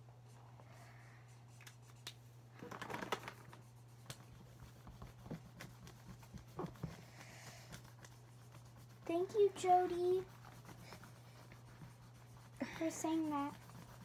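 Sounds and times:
steady low hum: 0.0s - 14.0s
paper rustling: 2.6s - 3.8s.

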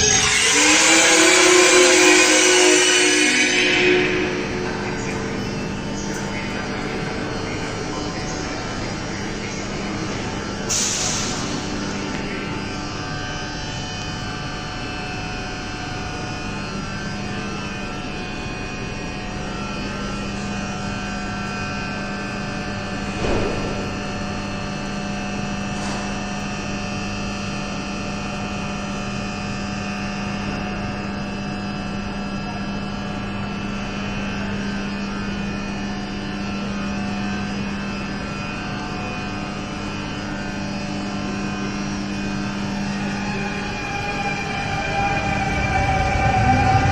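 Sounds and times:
train motor whine rising: 0.0s - 22.1s, 34.8s - 46.9s
train equipment humming: 0.0s - 29.0s, 30.1s - 46.9s
thump: 23.2s - 23.9s.

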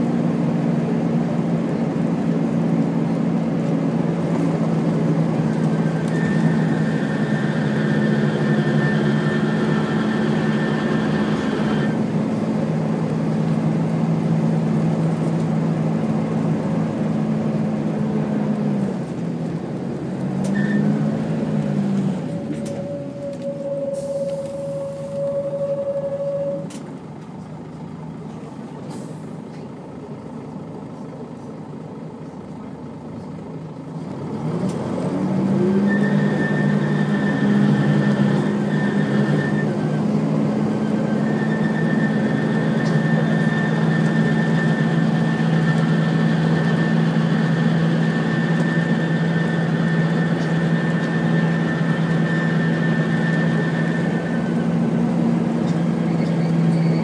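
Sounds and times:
bus engine droning: 0.0s - 57.0s
high gearbox whine: 22.2s - 26.8s.

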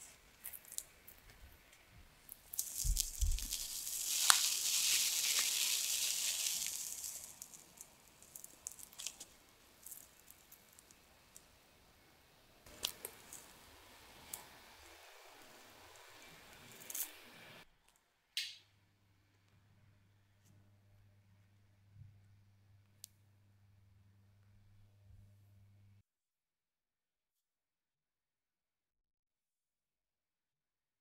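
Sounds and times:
bread crust crackling and tearing: 0.0s - 1.3s, 2.2s - 11.4s.

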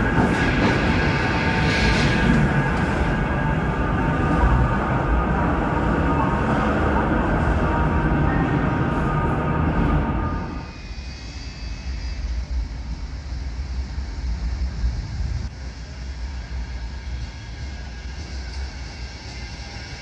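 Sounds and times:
approaching tram rumble: 0.0s - 10.7s
echoing tram rumble: 0.0s - 20.0s.

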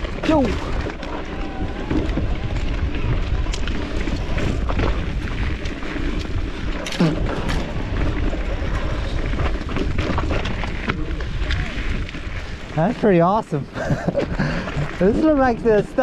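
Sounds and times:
bike rattling and knocking: 0.0s - 16.0s
wind rumbling on microphone: 0.0s - 16.0s.

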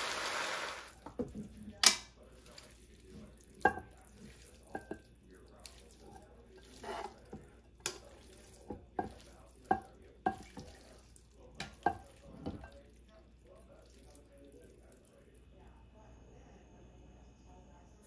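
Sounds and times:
wet shuffle of noodles: 2.1s - 15.4s.

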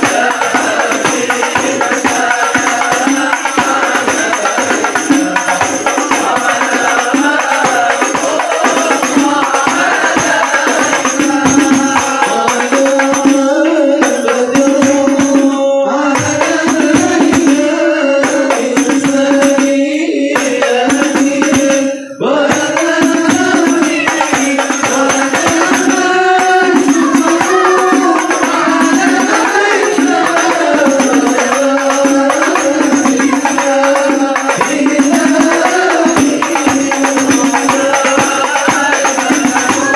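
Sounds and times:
frame drums beaten by hand: 0.0s - 39.9s
men singing a devotional chant: 0.0s - 39.9s.

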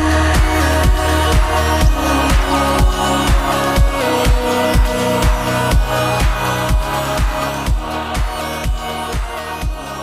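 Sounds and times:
electronic music with kick drum: 0.0s - 10.0s.

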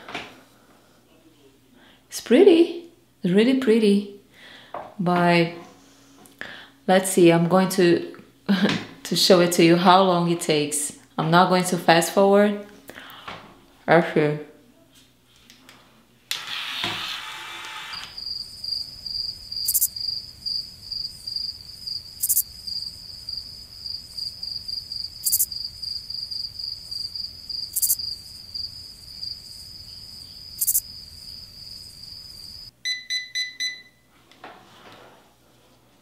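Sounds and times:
sharp ticks: 27.7s - 28.0s, 30.6s - 30.8s
hair curler beeps: 32.8s - 34.0s.

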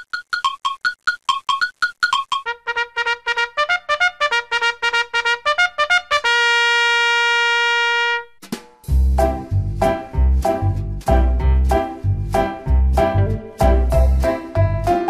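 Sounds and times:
intro music notes: 8.4s - 15.0s.

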